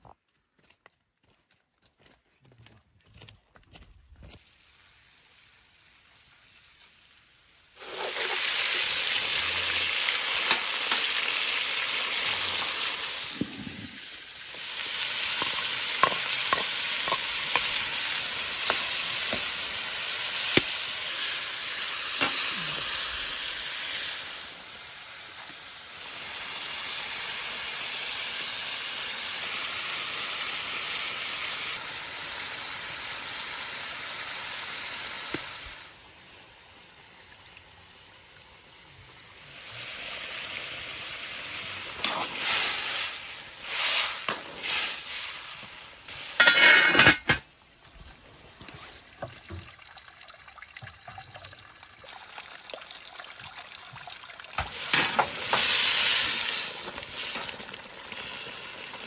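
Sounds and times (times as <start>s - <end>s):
food sizzling in a pot: 4.4s - 59.0s
wooden spatula scraping a pot: 13.4s - 19.6s, 42.0s - 43.1s.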